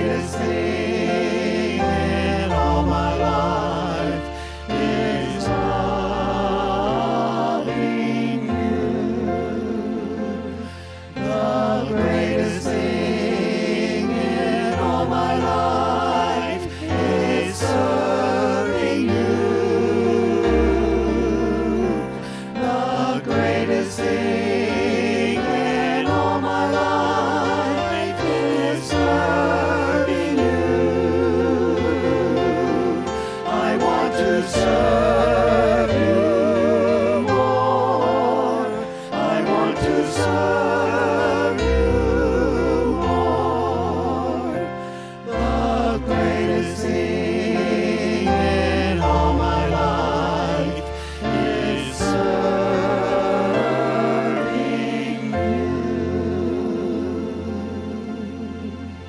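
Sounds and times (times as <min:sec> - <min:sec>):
electric keyboard: 0:00.0 - 0:59.0
group singing a praise song: 0:00.0 - 0:59.0.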